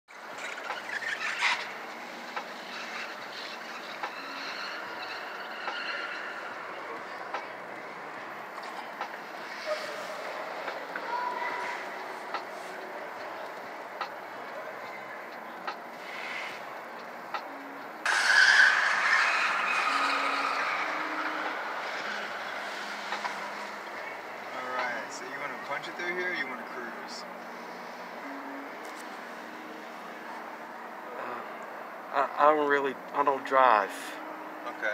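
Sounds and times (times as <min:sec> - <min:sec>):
tyres squealing on concrete: 0:00.3 - 0:01.9, 0:02.6 - 0:07.4, 0:18.0 - 0:23.4.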